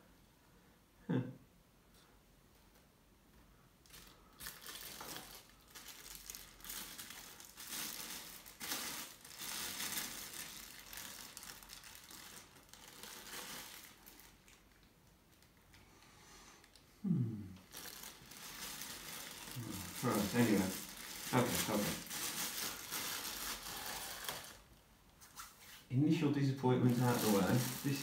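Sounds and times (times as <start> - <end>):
plastic and paper crinkling: 3.8 - 15.6, 17.6 - 25.9, 26.6 - 28.0.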